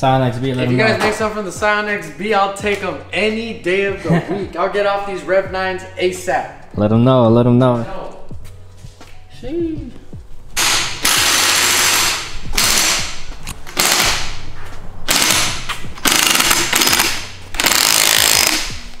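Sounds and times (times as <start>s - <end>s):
impact wrench spinning: 10.6s - 14.4s, 15.1s - 19.0s.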